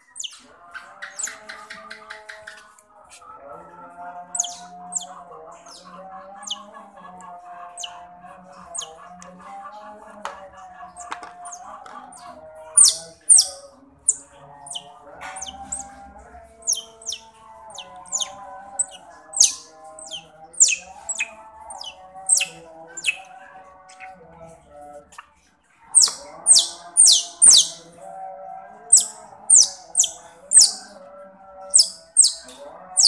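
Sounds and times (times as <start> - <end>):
baby otter chirping: 0.0 - 0.4, 4.3 - 5.1, 7.8 - 8.0, 8.7 - 9.0, 11.0 - 15.9, 16.6 - 23.2, 25.9 - 27.9, 28.9 - 31.0, 31.7 - 33.0.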